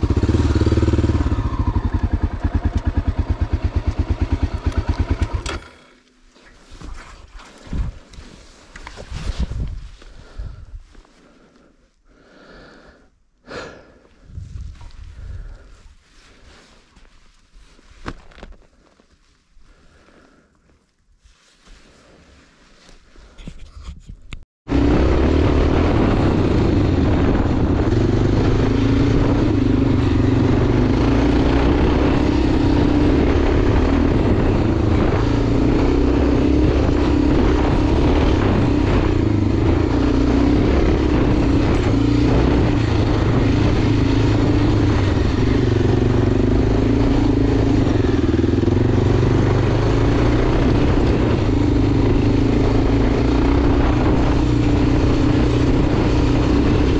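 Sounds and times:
motorcycle engine running: 0:00.0 - 0:06.2, 0:24.7 - 0:56.9
rushing noise: 0:24.7 - 0:56.9.

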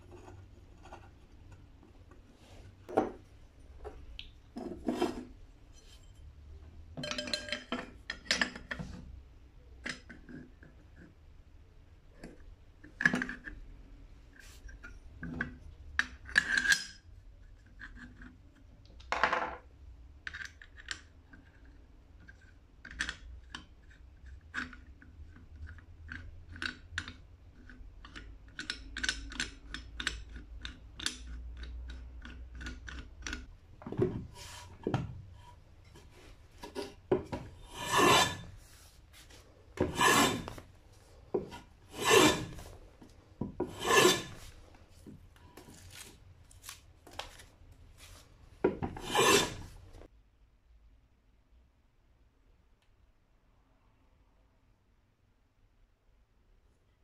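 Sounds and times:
hand plane shaving wood: 0:37.6 - 0:38.6, 0:39.8 - 0:40.6, 0:41.4 - 0:42.7, 0:43.6 - 0:44.5, 0:48.9 - 0:49.8.

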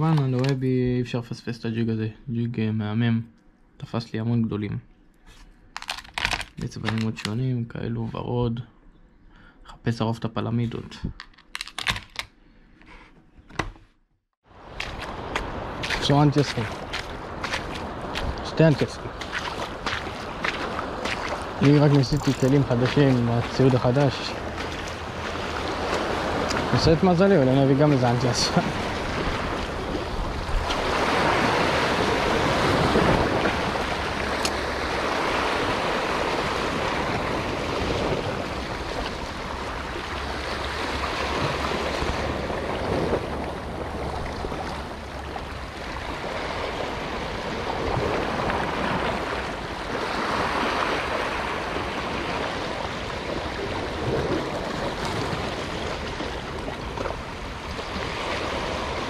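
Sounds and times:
sea waves washing over rocks: 0:14.5 - 0:59.0.

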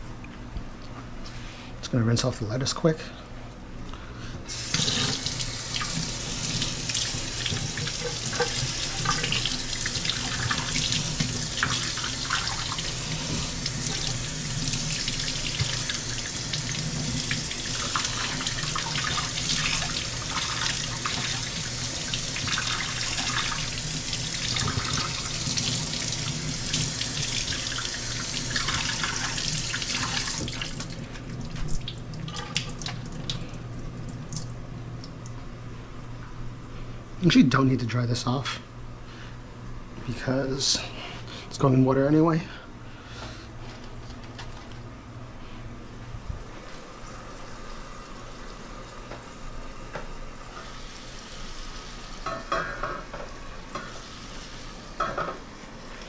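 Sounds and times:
faucet running into metal sink: 0:04.5 - 0:33.4.

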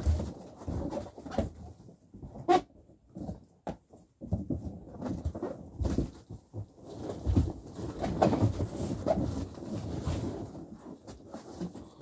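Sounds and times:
cardboard box rustling and scraping: 0:06.9 - 0:12.0.

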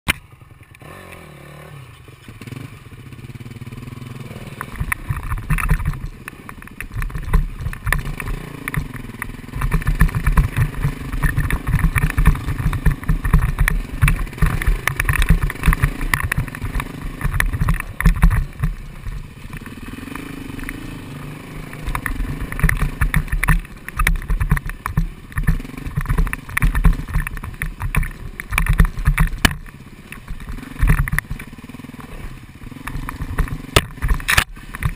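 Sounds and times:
dirt bike engines revving: 0:00.3 - 0:34.9
bikes thumping over rocks: 0:04.6 - 0:19.7, 0:21.8 - 0:31.5, 0:32.9 - 0:34.9.

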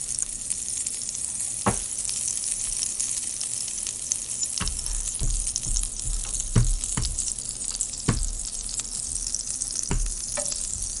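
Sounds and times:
toasted bread crackling: 0:00.0 - 0:11.0
dull knocks: 0:04.6 - 0:07.4, 0:08.1 - 0:08.5, 0:09.1 - 0:11.0.

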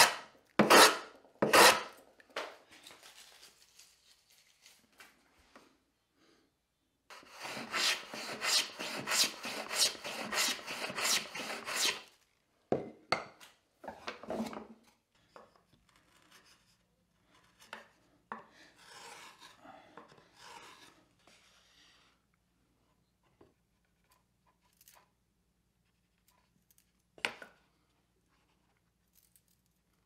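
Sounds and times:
hand plane shaving wood: 0:00.0 - 0:01.9, 0:07.1 - 0:12.1, 0:18.8 - 0:19.6.

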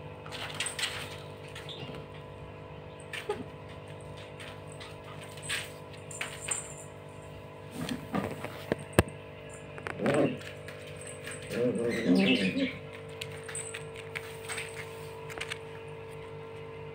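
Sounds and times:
electric fan humming: 0:00.0 - 0:16.9
paws skittering on plastic mat: 0:03.1 - 0:06.8, 0:09.8 - 0:16.7.

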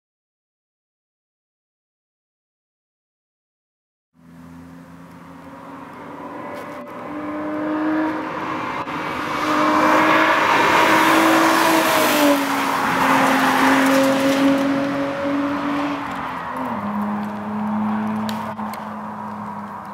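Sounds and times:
car engine passing by: 0:04.2 - 0:19.9.

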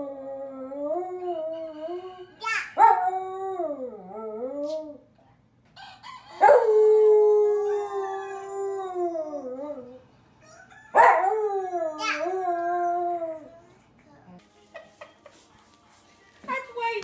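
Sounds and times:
dog howling: 0:06.4 - 0:10.0.

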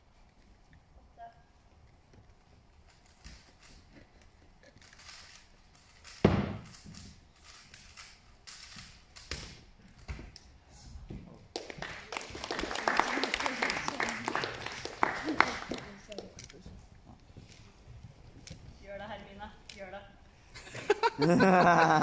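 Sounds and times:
loud thump: 0:06.2 - 0:06.7
applause: 0:11.5 - 0:16.3.

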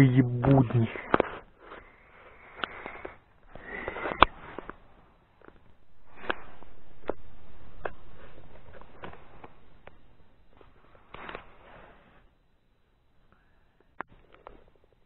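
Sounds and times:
sniffing and breathing: 0:01.0 - 0:05.0
long hiss: 0:01.1 - 0:12.5.

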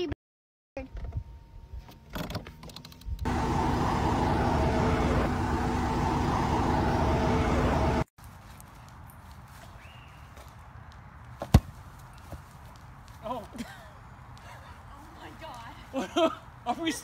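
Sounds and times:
steady multi-tone hum: 0:03.2 - 0:08.0
highway traffic road noise: 0:03.3 - 0:17.0.

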